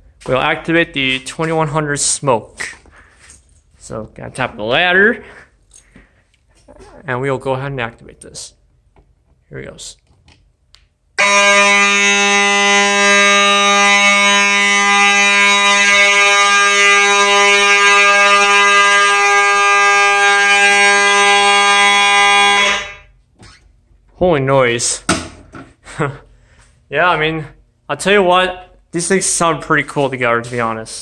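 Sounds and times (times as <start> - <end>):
fire alarm horns buzzing: 0.0 - 5.9, 11.2 - 23.2, 26.9 - 31.0.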